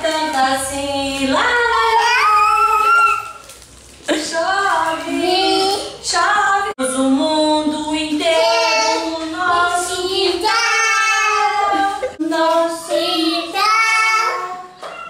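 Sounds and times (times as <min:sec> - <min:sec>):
young boy singing: 0:04.8 - 0:06.4, 0:07.1 - 0:14.8.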